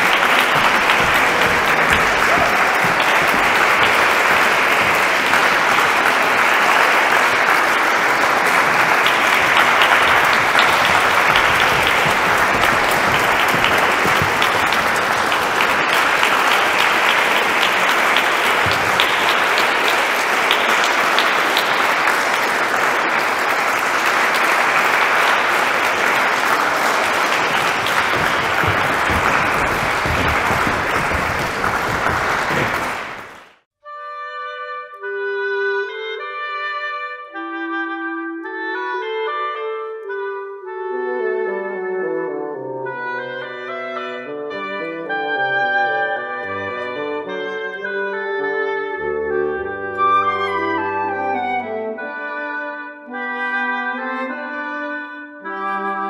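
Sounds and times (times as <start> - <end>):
audience applauding: 0.0 - 33.6.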